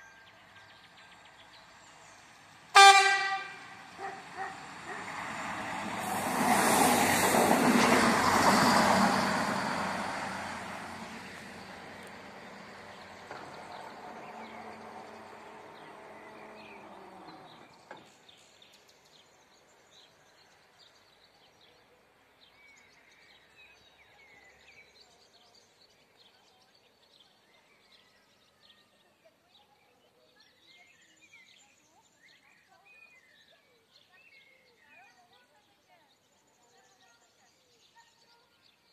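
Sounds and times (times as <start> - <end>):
railcar passing: 0.0 - 18.0
birds chirping: 0.3 - 21.1.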